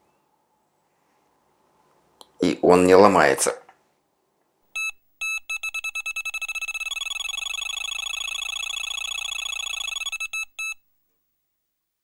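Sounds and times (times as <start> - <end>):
electronic alarm beeping: 4.8 - 10.8.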